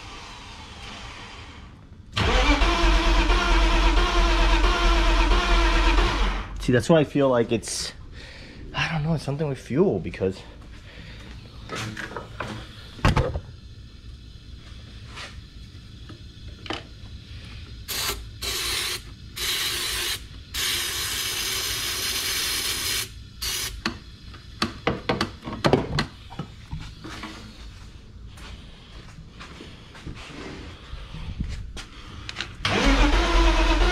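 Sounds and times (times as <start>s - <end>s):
aerosol spray hissing: 17.7s - 24.0s.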